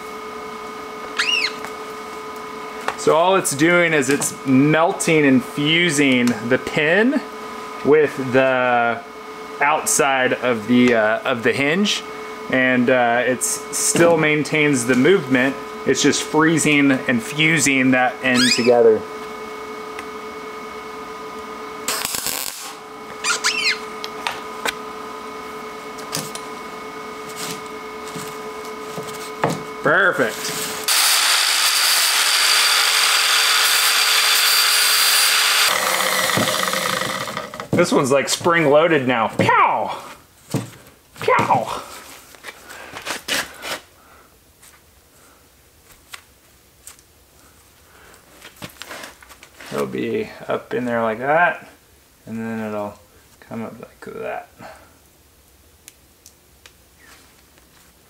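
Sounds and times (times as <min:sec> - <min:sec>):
hinge squeak: 0:01.2 - 0:01.6, 0:18.4 - 0:18.8, 0:23.2 - 0:23.8
arc welding burst: 0:21.8 - 0:23.9, 0:30.7 - 0:37.6.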